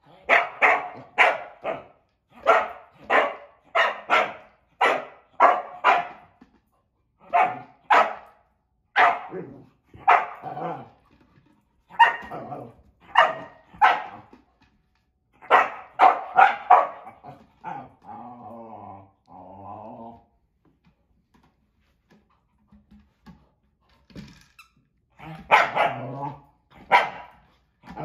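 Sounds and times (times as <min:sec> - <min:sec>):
dog barking sharply: 0:00.3 - 0:06.1, 0:09.0 - 0:09.3, 0:15.4 - 0:17.0.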